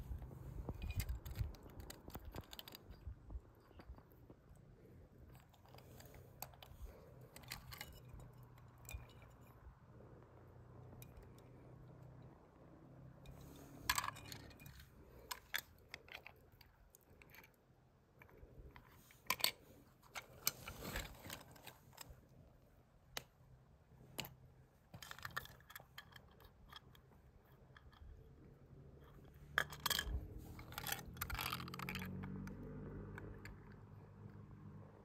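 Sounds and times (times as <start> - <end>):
toy cars clicking together: 0.6 - 4.1, 13.3 - 22.2, 24.1 - 34.4.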